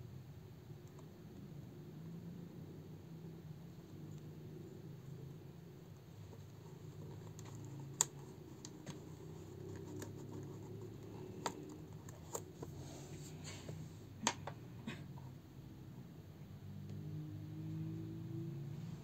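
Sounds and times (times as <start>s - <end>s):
faint low hum: 0.0s - 19.0s
headphones plastic clicks and scraping: 6.2s - 14.6s.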